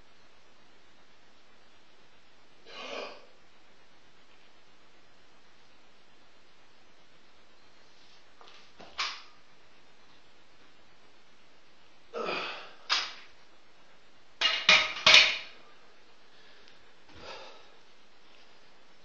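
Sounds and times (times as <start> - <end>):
metal clanks of steel bar: 14.4 - 15.6.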